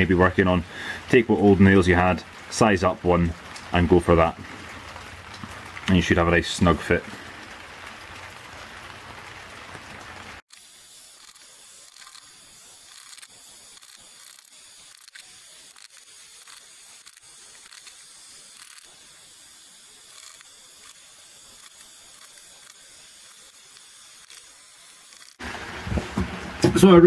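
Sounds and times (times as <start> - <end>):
electric drill boring into wood: 10.5 - 25.5.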